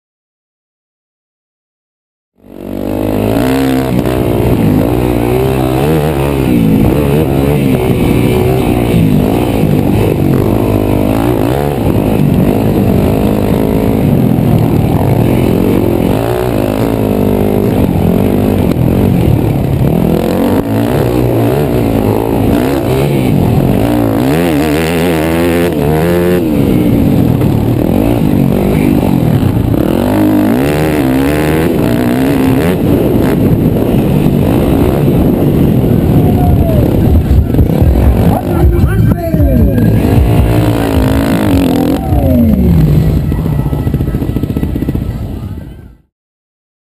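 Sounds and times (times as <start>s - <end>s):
dirt bike engine revving: 2.4s - 45.5s.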